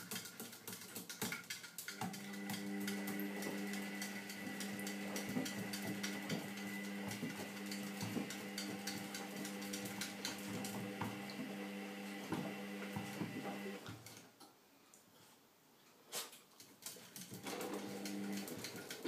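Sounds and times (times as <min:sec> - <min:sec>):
washing machine motor hum: 0:02.0 - 0:13.9, 0:17.4 - 0:19.0.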